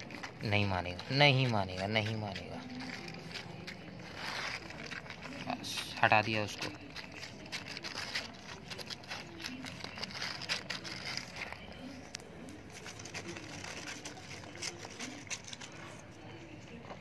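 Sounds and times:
puppies lapping food: 0.0 - 11.5.

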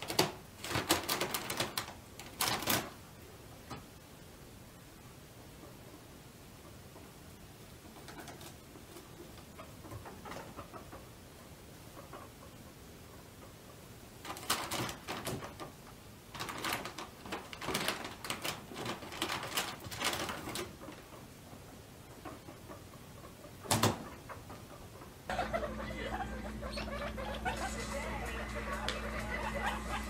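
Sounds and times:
crackly paper rustling: 0.0 - 3.0, 14.2 - 15.7, 16.3 - 21.0.

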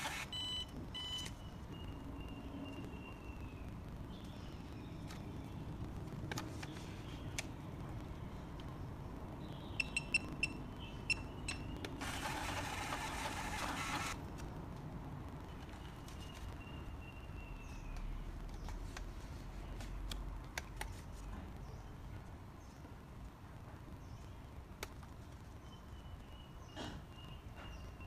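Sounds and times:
thermal printer printing: 0.0 - 0.6, 12.0 - 14.2
payment terminal beeps: 0.0 - 1.6, 9.8 - 14.2.

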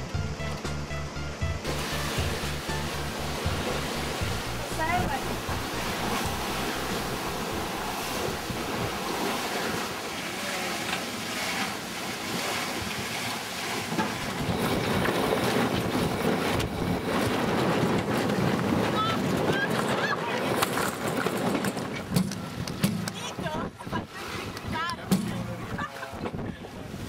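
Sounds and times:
water rushing along hull: 0.0 - 27.0
wind buffeting microphone: 3.4 - 10.1, 13.8 - 27.0.

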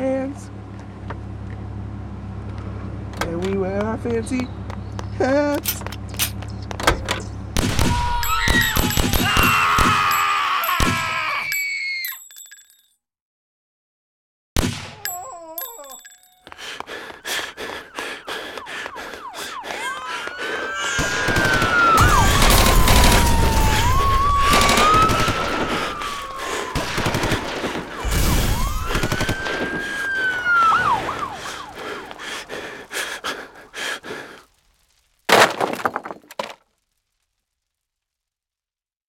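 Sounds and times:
emergency vehicle siren wailing: 7.8 - 11.2, 16.4 - 33.6.

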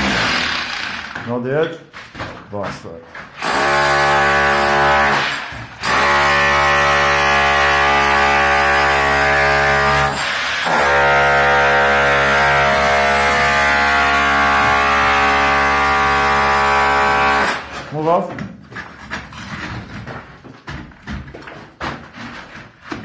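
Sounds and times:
electric demolition hammer chiselling: 0.0 - 1.3, 3.4 - 17.9.

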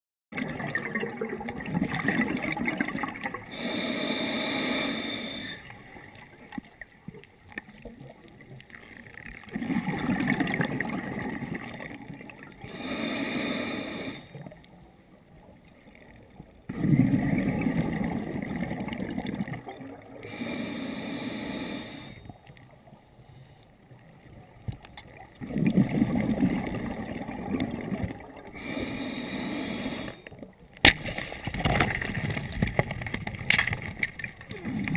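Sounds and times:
hissing regulator inhalation: 3.5 - 5.8, 12.7 - 14.4, 20.2 - 22.3, 28.6 - 30.3
bubbling regulator exhalations: 9.5 - 14.6, 16.7 - 22.2, 25.4 - 30.3, 34.5 - 34.9.

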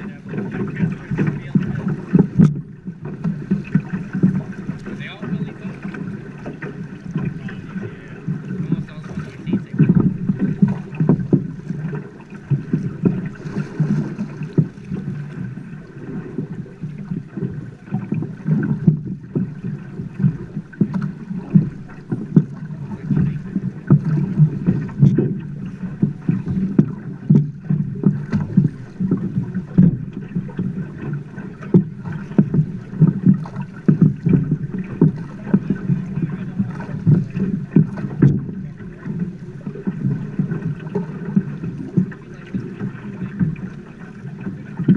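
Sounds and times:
knocks on boat: 0.0 - 44.9
oars splashing in water: 0.0 - 44.9
river water slapping boat hull: 0.0 - 44.9.

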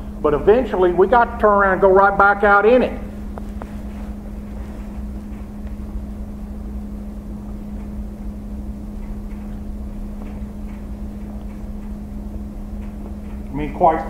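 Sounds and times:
constant hum: 0.0 - 14.0.

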